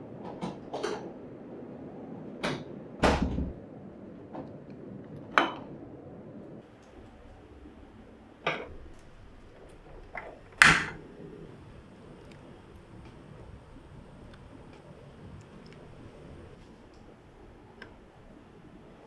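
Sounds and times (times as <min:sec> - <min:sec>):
kitchenware knocking and clicking: 0:10.1 - 0:11.0
gas stove igniter click: 0:10.6 - 0:11.0.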